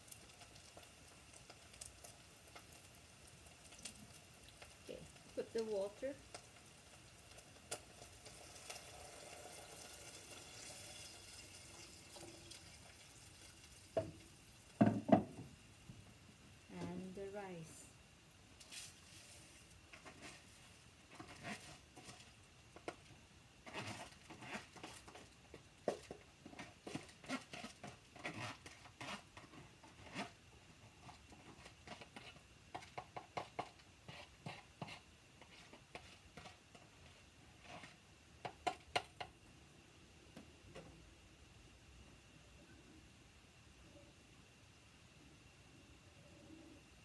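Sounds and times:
spatula scraping rice from bowl: 20.0s - 23.0s, 23.6s - 25.3s, 26.6s - 30.4s, 31.0s - 38.0s.

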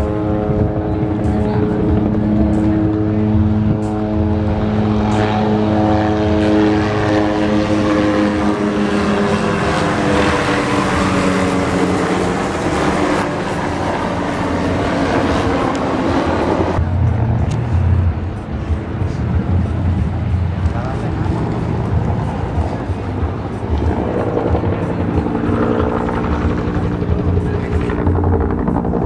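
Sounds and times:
helicopters humming: 0.0s - 29.0s
rotor rushing noise: 0.0s - 29.0s.

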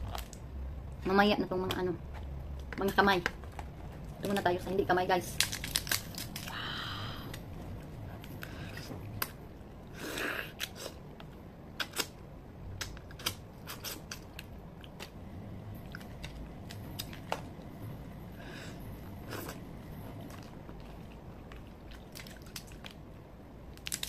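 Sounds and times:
crab shell cracking: 5.3s - 6.7s, 23.8s - 24.0s
sucking and chewing: 5.3s - 17.8s, 18.7s - 24.0s.

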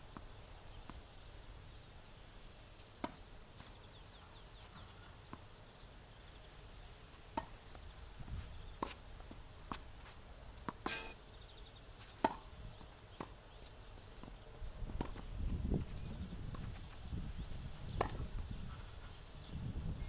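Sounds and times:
racket hitting tennis ball: 7.3s - 7.6s, 10.6s - 11.2s.

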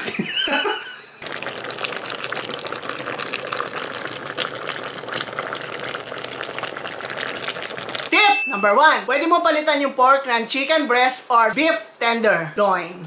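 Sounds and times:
sauce bubbling and popping: 1.2s - 8.3s.

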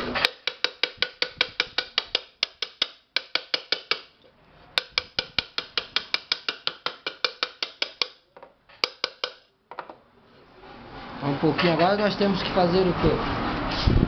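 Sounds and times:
hammer tapping on aluminium lid: 0.2s - 4.1s, 4.8s - 10.0s.

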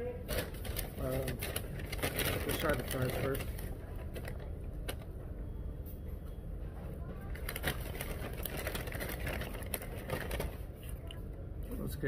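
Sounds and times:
low room rumble: 0.0s - 12.0s
paper bag crinkling: 0.2s - 4.4s, 7.3s - 10.7s.

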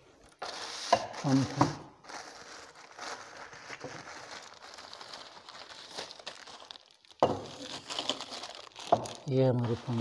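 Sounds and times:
plastic bag rustling: 0.2s - 10.0s.

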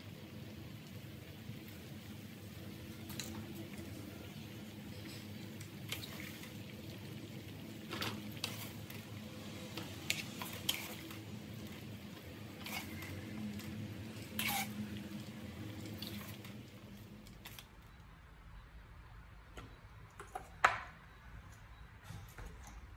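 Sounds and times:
water sloshing and dripping: 4.9s - 17.8s.

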